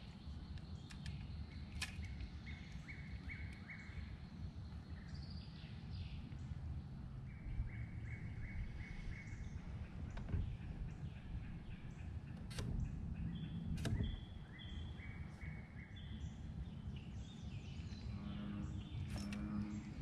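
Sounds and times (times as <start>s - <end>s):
bird singing repeated notes: 0.0s - 6.5s, 7.3s - 20.0s
steady low rumble: 0.0s - 20.0s
sharp click: 0.9s - 2.3s, 13.8s - 14.2s.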